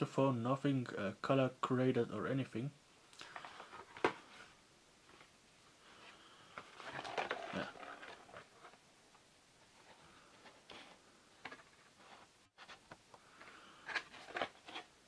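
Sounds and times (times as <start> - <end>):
rustling and scraping: 3.2 - 5.3, 5.9 - 15.0.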